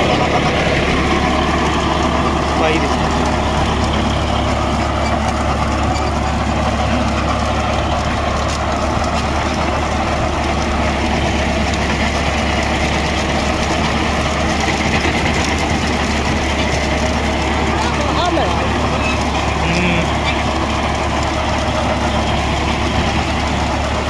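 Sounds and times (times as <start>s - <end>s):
tractor diesel engine humming: 0.0s - 24.0s.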